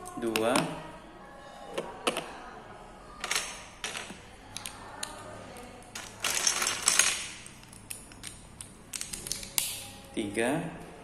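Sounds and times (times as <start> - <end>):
plastic bricks clicking: 6.0 - 9.8.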